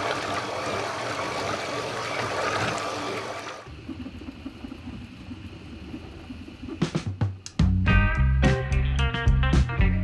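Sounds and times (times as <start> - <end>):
propeller churning water: 0.0 - 5.7.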